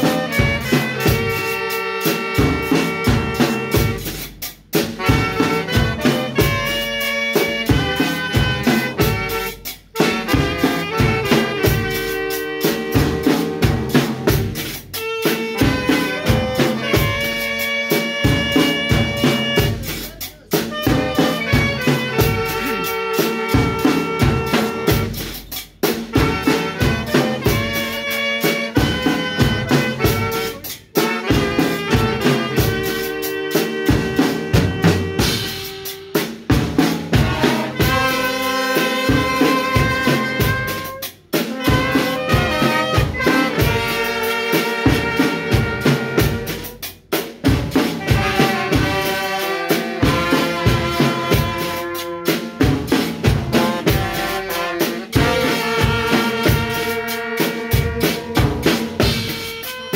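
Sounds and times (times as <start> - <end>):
drum kit with bass-drum beat: 0.0 - 59.9
saxophones playing tune: 0.0 - 59.9
trumpets and trombone: 0.0 - 59.9.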